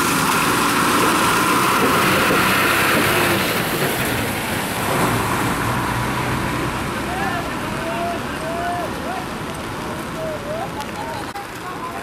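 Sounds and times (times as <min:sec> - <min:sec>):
bus engine running: 0:00.0 - 0:12.0
tyres hissing on wet road: 0:00.0 - 0:12.0.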